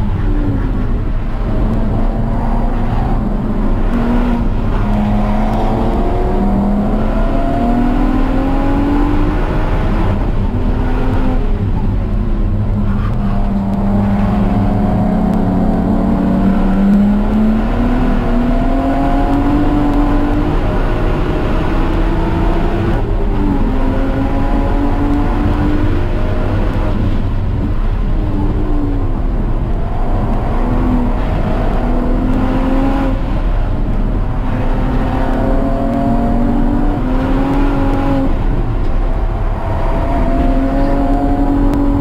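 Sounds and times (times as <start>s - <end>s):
car engine revving: 0.0s - 42.0s
low rumble: 21.2s - 42.0s.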